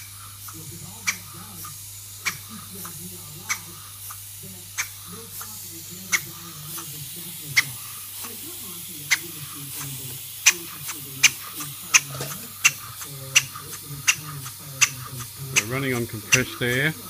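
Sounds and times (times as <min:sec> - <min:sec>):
model engine clicking: 0:09.1 - 0:17.0.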